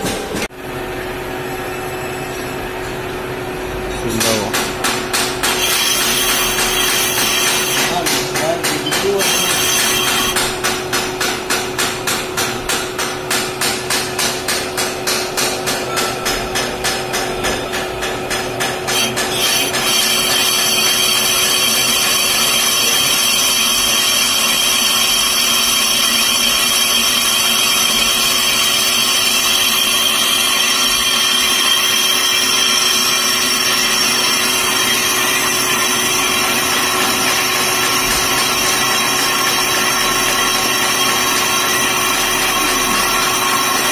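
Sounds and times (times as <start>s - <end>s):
lathe running hum: 0.0s - 43.9s
lathe cutting tool knocking: 4.1s - 43.9s
lathe cutting with high whine: 5.5s - 10.4s, 18.9s - 43.9s.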